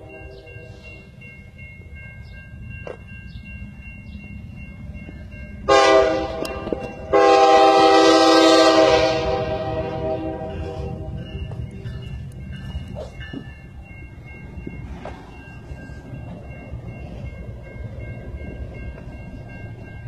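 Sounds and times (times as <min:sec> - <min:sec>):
locomotive air horn chord: 0:05.7 - 0:11.1.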